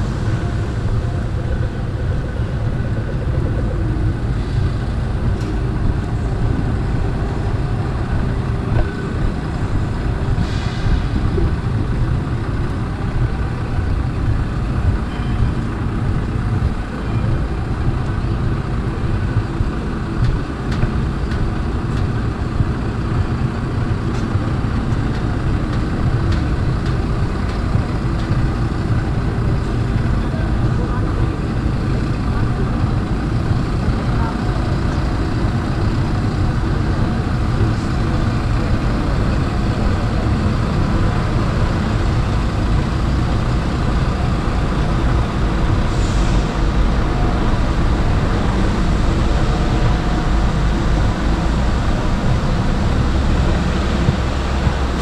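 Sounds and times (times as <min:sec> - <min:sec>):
traffic engines rumbling: 0:00.0 - 0:55.0.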